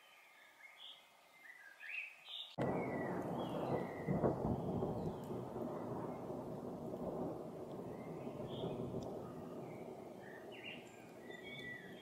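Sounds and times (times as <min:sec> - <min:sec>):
chaffinch chirping: 0:00.0 - 0:06.5, 0:07.4 - 0:12.0
thunder rumbling: 0:02.6 - 0:12.0.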